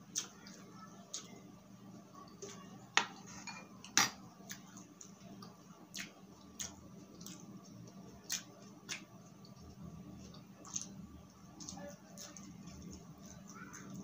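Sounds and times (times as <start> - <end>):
cutlery clinking on a plate: 3.0 - 4.2.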